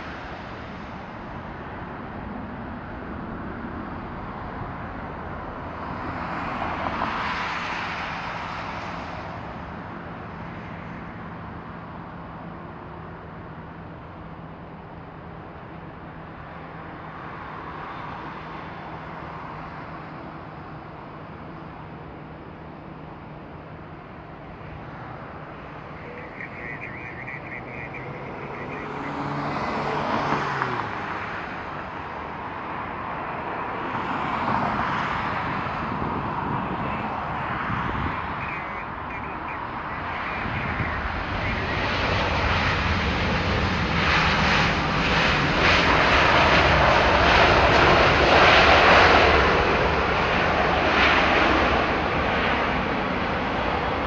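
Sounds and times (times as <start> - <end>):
airliner jet engines: 0.0 - 54.0.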